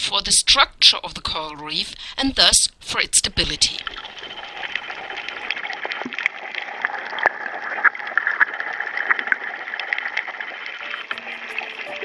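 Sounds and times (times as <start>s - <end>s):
underwater clicks and crackles: 3.6s - 11.8s.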